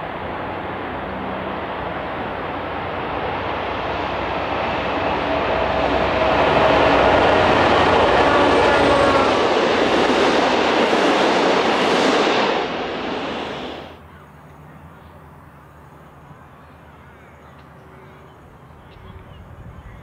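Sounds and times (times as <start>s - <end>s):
diesel train passing at speed: 0.0s - 20.0s
faint outdoor background: 12.2s - 20.0s.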